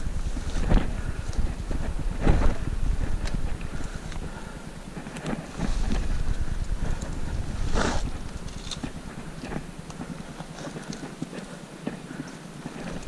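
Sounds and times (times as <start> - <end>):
wind rumbling on microphone: 0.0 - 13.0.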